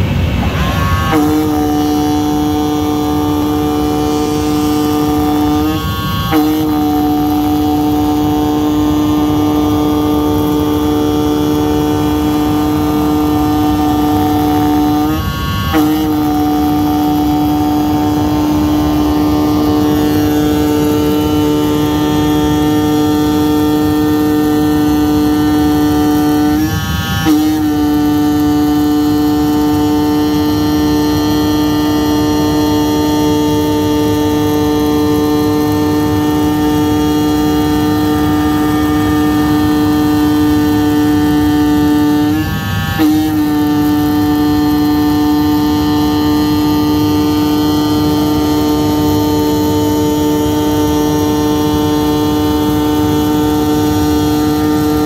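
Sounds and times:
low rushing noise: 0:00.0 - 0:06.3
cutting machine buzzing hum: 0:00.0 - 0:55.0.

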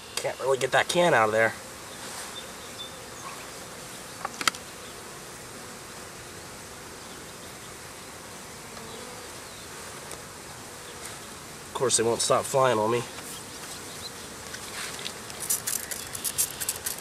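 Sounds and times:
honeybees buzzing: 0:00.0 - 0:17.0
hive tool clicking on can: 0:14.5 - 0:17.0.

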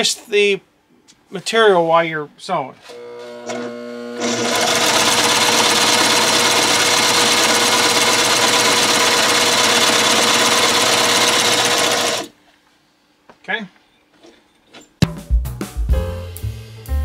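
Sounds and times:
sewing machine motor hum: 0:02.9 - 0:12.3
sewing machine stitching: 0:03.4 - 0:12.3.

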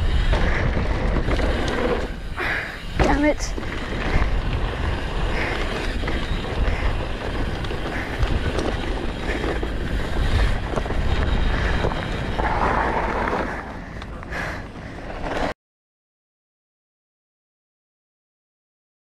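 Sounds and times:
wind buffeting microphone: 0:00.0 - 0:14.4.

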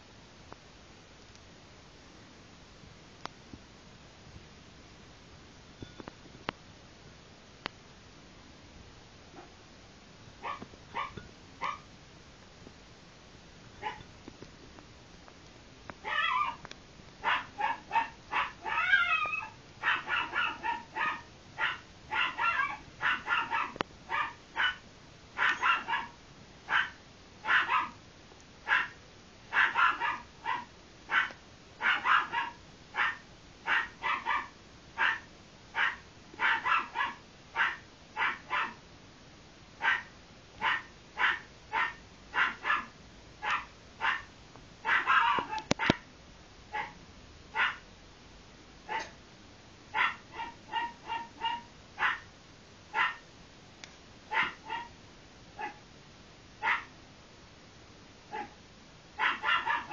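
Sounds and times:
dog barking: 0:10.4 - 0:11.9, 0:13.8 - 0:14.1, 0:16.0 - 0:16.6, 0:17.2 - 0:24.8, 0:25.4 - 0:28.0, 0:28.6 - 0:38.8, 0:39.8 - 0:46.0, 0:46.7 - 0:47.8, 0:48.9 - 0:49.2, 0:49.9 - 0:52.3, 0:52.9 - 0:53.2, 0:54.3 - 0:55.0, 0:55.6 - 0:55.8, 0:56.6 - 0:56.9, 0:58.3 - 0:58.6, 0:59.2 - 0:59.9
dog wavering calls: 0:16.0 - 0:16.6, 0:17.2 - 0:24.8, 0:25.4 - 0:28.0, 0:28.7 - 0:35.2, 0:39.8 - 0:46.0, 0:49.9 - 0:52.2, 0:54.3 - 0:55.0, 0:59.2 - 0:59.9.

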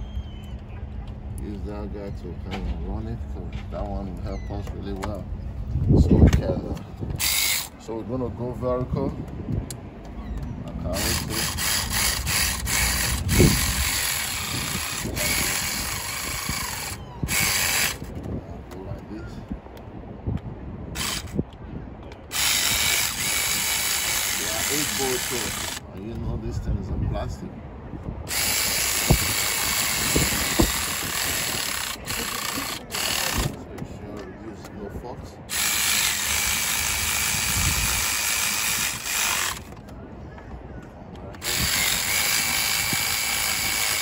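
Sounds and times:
power ratchet rushing noise: 0:07.2 - 0:07.8, 0:10.9 - 0:18.2, 0:20.9 - 0:21.4, 0:22.3 - 0:25.8, 0:28.3 - 0:33.6, 0:35.5 - 0:39.8, 0:41.4 - 0:44.0
loud hissing noise: 0:22.3 - 0:25.8, 0:28.3 - 0:33.5.

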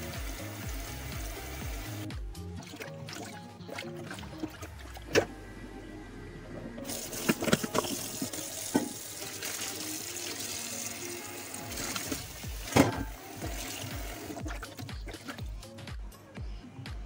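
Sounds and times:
tap water running into sink: 0:06.9 - 0:15.4
sharp knocks and splashes: 0:11.8 - 0:13.7.

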